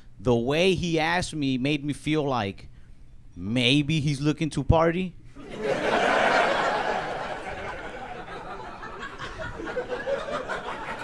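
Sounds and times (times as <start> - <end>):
audience laughing: 5.4 - 11.0.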